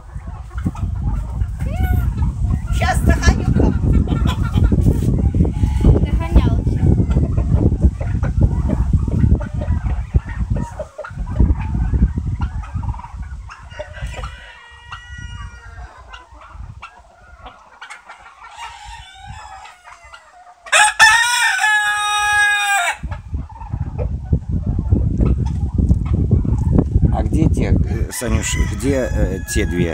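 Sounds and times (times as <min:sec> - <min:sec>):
chickens calling softly: 0:00.0 - 0:29.9
rooster crowing: 0:13.7 - 0:15.9, 0:18.5 - 0:23.1, 0:28.1 - 0:29.9.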